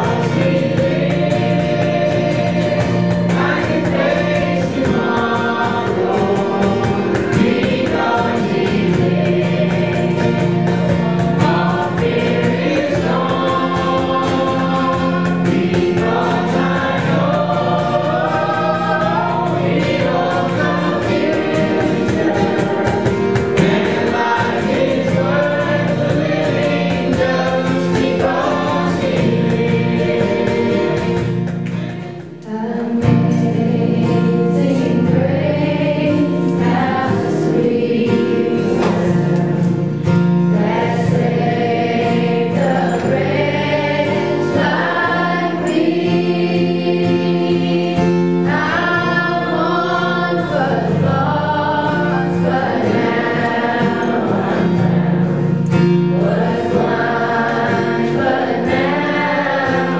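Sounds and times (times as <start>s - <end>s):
man and woman singing: 0.0s - 59.9s
strummed acoustic guitar: 0.0s - 59.9s.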